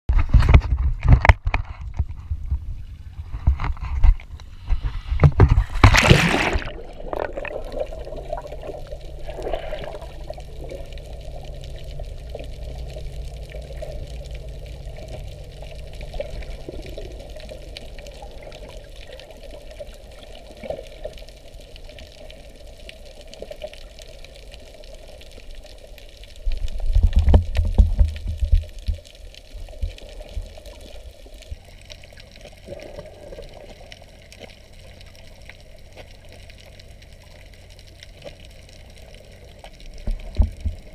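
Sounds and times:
underwater low hum: 0:00.1 - 0:40.9
water rushing underwater: 0:00.6 - 0:40.9
camera splashing into water: 0:04.8 - 0:07.9.

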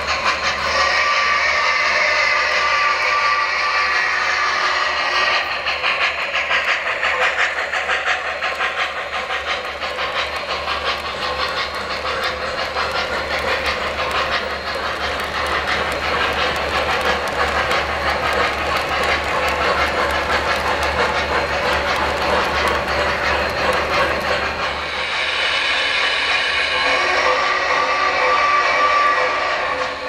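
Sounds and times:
model locomotive hiss: 0:00.0 - 0:30.0
model train wheels clicking: 0:00.0 - 0:30.0.

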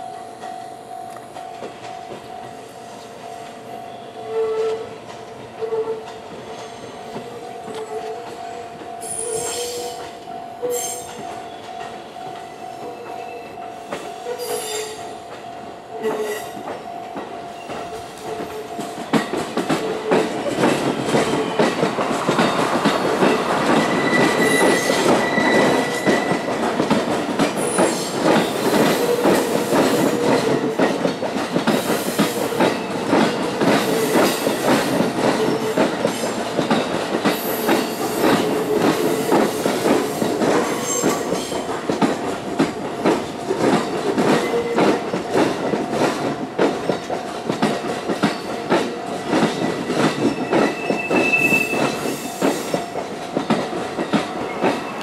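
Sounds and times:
train wheels squealing: 0:05.6 - 0:07.2, 0:07.8 - 0:11.9, 0:13.0 - 0:15.1, 0:20.1 - 0:26.5, 0:48.2 - 0:53.0.

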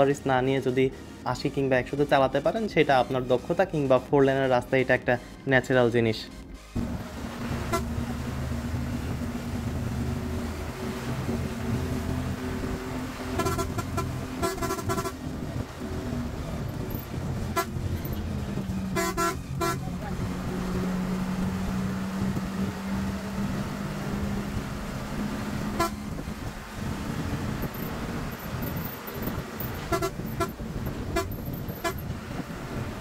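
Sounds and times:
bus engine and road noise: 0:00.0 - 0:33.0
horn tooting short blasts: 0:07.5 - 0:08.2, 0:13.3 - 0:15.3, 0:17.0 - 0:18.2, 0:18.9 - 0:19.9, 0:25.7 - 0:26.2, 0:29.7 - 0:32.1.

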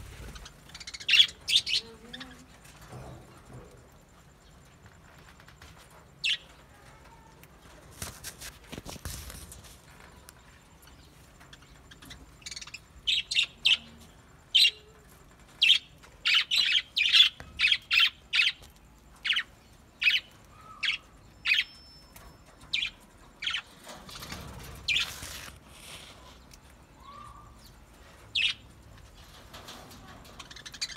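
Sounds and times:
wing flaps rustling: 0:07.8 - 0:10.0.

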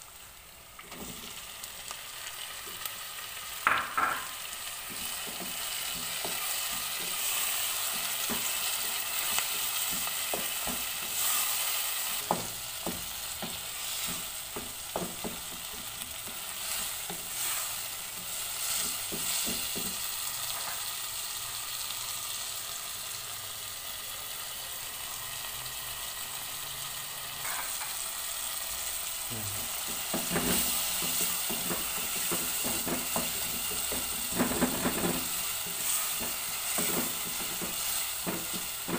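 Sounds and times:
vegetables sizzling in a frying pan: 0:00.0 - 0:38.9
wooden spatula scraping a pan: 0:04.8 - 0:20.9, 0:29.8 - 0:38.9.

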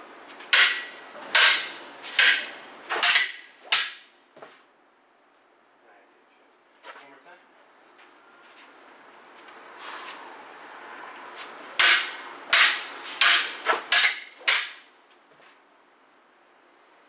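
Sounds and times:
sabre blades clashing: 0:00.5 - 0:04.2, 0:11.8 - 0:15.0.

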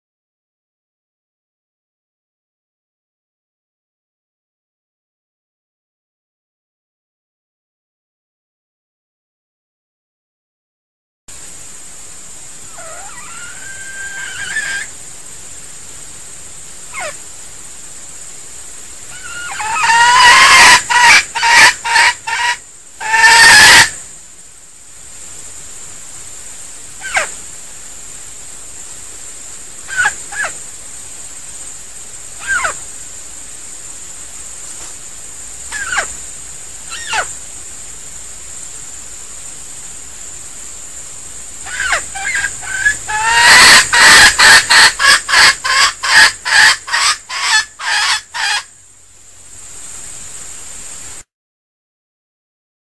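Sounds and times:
high-pitched hiss: 0:11.3 - 0:51.3
rooster crowing: 0:19.2 - 0:23.9, 0:42.2 - 0:48.7
short sharp bird calls: 0:36.9 - 0:37.3.

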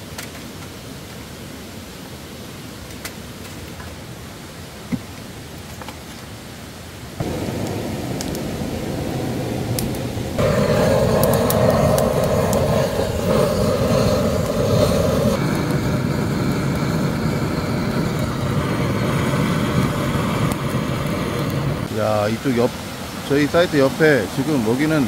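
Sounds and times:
gas torch roaring: 0:07.2 - 0:25.0
sharp crackles: 0:09.7 - 0:21.9.

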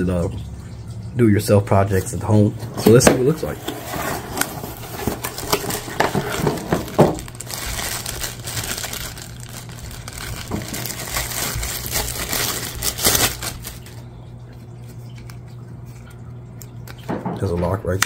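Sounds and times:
cardboard and paper handling: 0:02.7 - 0:14.0
plastic wrapping crinkling: 0:02.9 - 0:14.1.

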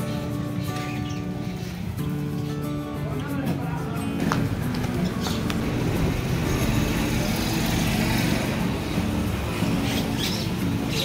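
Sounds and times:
motor vehicle passing: 0:04.5 - 0:11.0.

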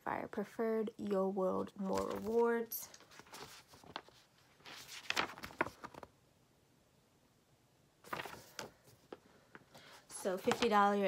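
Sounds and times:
paper rustling: 0:01.8 - 0:06.2, 0:08.1 - 0:11.0.

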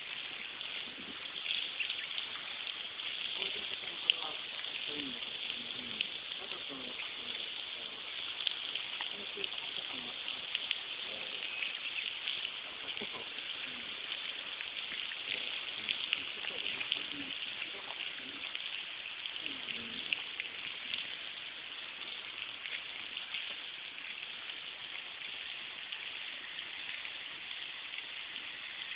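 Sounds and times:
crackling hiss: 0:00.0 - 0:28.9
faint low voices: 0:19.4 - 0:20.2.

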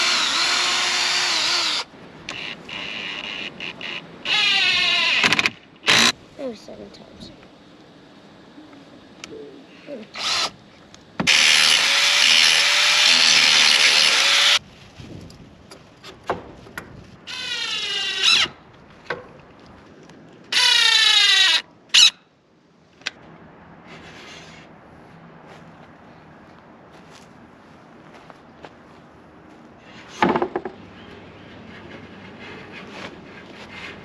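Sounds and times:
cordless drill driving into wood: 0:03.9 - 0:06.1, 0:11.2 - 0:14.6, 0:20.5 - 0:21.6.

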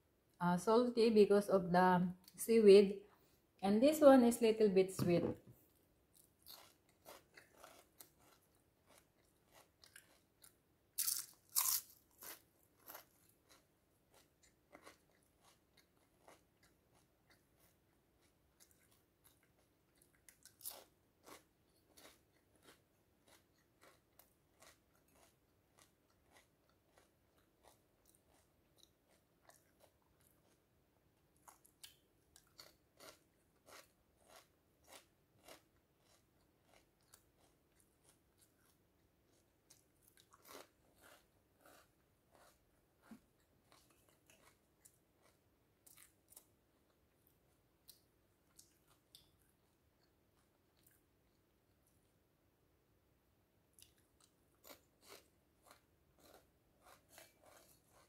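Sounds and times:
dry crunching of snacks: 0:06.1 - 0:30.6, 0:31.4 - 0:42.6.

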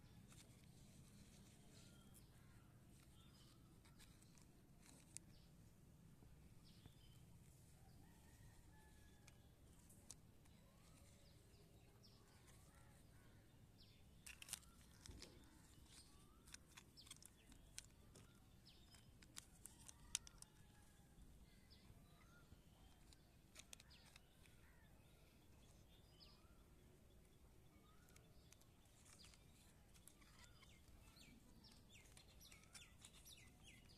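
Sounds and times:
birds chirping: 0:06.5 - 0:33.9
plastic toy trucks clicking: 0:14.2 - 0:20.6, 0:22.9 - 0:24.6, 0:27.8 - 0:33.9.

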